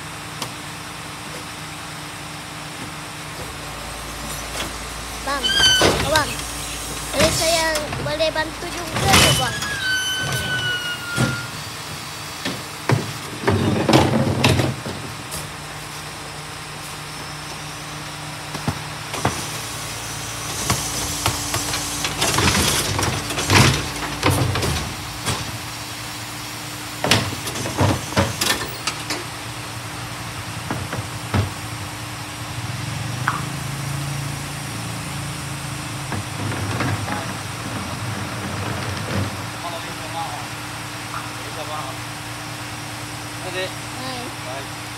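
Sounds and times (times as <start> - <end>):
garbage truck hydraulic hum: 0.9 - 41.4
metal clanks and bangs of bin: 3.4 - 11.7, 12.4 - 15.6, 20.2 - 25.7, 27.0 - 29.3, 36.1 - 39.8.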